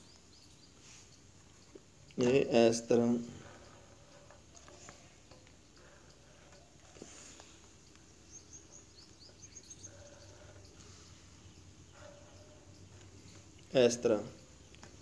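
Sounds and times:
high bird chirps: 0:05.0 - 0:13.4.

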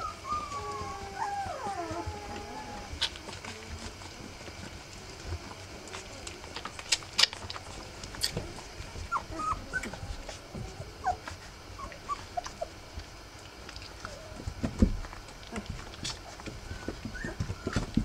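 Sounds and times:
puppies squeaking and whimpering: 0:00.0 - 0:04.7, 0:05.9 - 0:13.0, 0:13.8 - 0:18.0.

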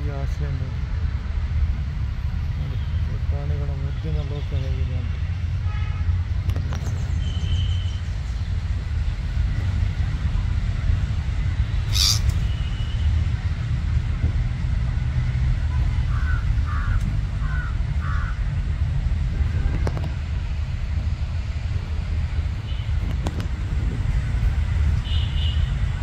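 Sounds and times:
low outdoor rumble: 0:00.0 - 0:26.0
short bird calls: 0:11.8 - 0:12.9.

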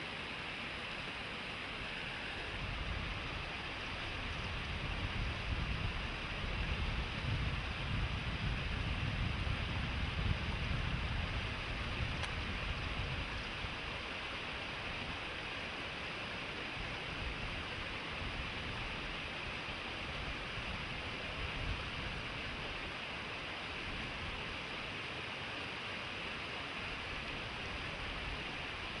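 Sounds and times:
stream rushing over rocks: 0:00.0 - 0:29.0
wind rumble on microphone: 0:01.8 - 0:15.6, 0:16.3 - 0:24.6.

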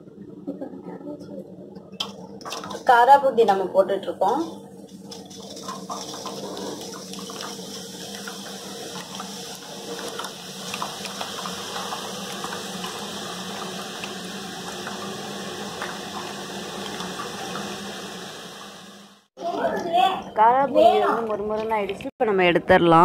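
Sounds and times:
batter sizzling in hot oil: 0:04.8 - 0:19.3.

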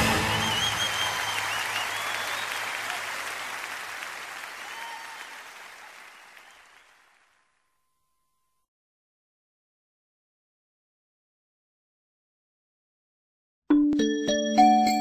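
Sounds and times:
crowd of children applauding: 0:00.0 - 0:07.6.

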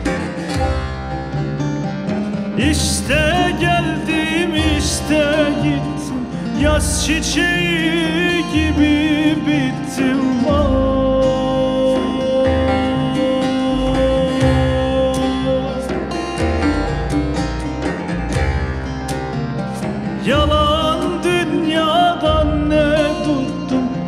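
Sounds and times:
long-necked lute playing: 0:00.0 - 0:24.0
low bass notes: 0:00.0 - 0:24.0
man singing ornamented melody: 0:02.5 - 0:16.7, 0:20.2 - 0:24.0.

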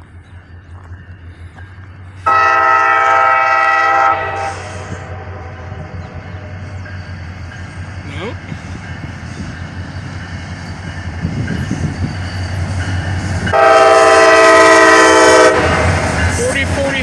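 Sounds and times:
freight train rumbling past: 0:00.0 - 0:17.0
locomotive air horn: 0:02.2 - 0:06.5, 0:13.5 - 0:15.9.

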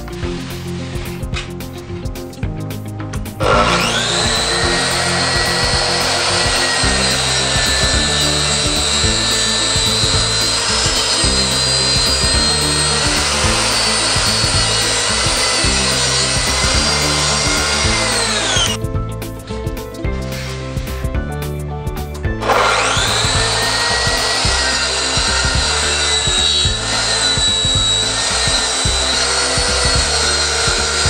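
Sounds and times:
track saw cutting wood: 0:03.4 - 0:18.8, 0:22.4 - 0:31.0.

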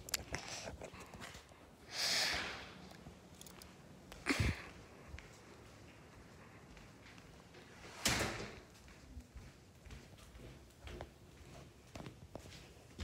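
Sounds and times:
breathy sniff: 0:00.3 - 0:02.8.

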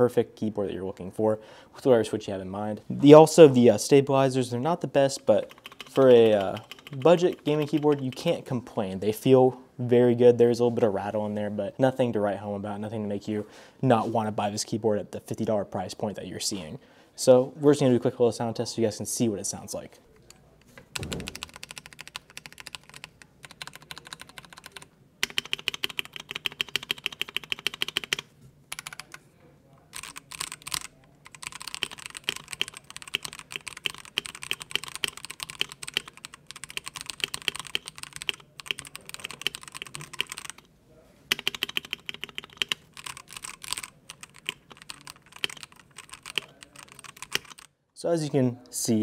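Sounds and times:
mechanical keyboard typing: 0:05.2 - 0:08.4, 0:20.9 - 0:29.2, 0:29.9 - 0:40.7, 0:41.3 - 0:47.7.

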